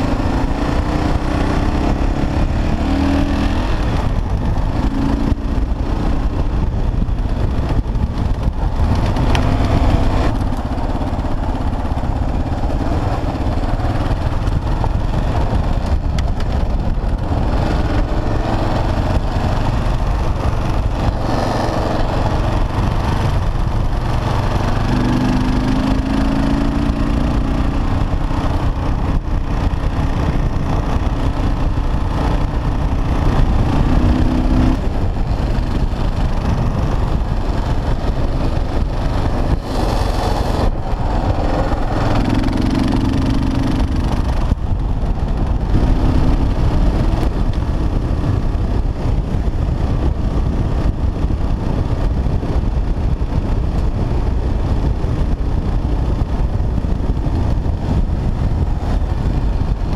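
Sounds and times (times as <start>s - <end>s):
motorcycle engine running: 0.0s - 59.9s
wind rumble on microphone: 0.0s - 59.9s.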